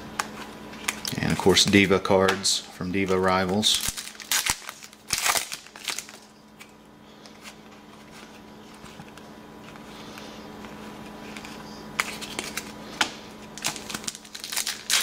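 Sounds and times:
foil pack tearing and crinkling: 3.0 - 6.3, 13.5 - 15.0
cards being shuffled: 3.0 - 15.0.

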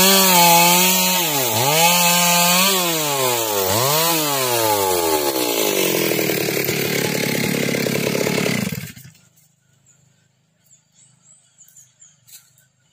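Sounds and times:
chainsaw engine running: 0.0 - 9.3.

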